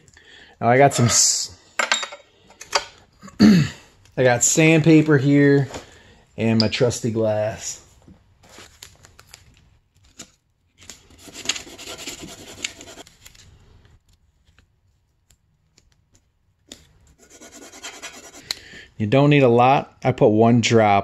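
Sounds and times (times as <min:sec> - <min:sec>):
sandpaper rustling: 0:11.0 - 0:13.1, 0:17.2 - 0:18.4.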